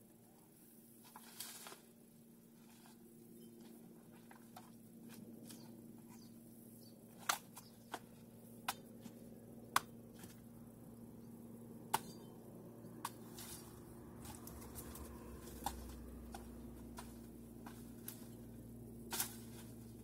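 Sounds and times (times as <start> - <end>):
weed stems cracking and snapping: 13.0 - 20.0.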